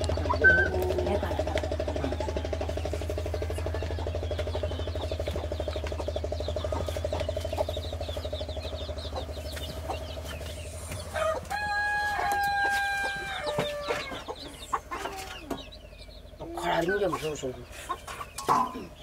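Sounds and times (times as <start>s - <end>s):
pulsing low drone: 0.0s - 12.1s
rooster crowing: 11.1s - 14.3s.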